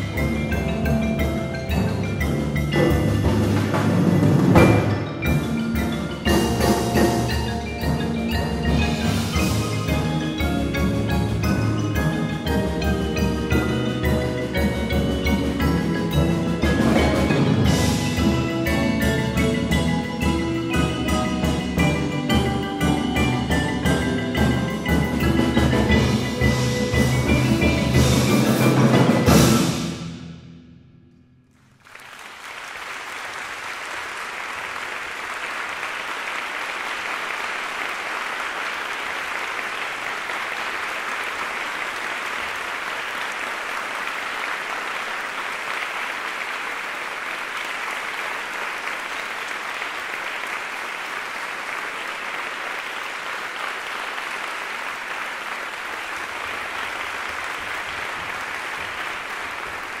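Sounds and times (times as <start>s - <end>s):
mallet percussion chord: 0.0s - 31.0s
audience applause: 31.7s - 60.0s.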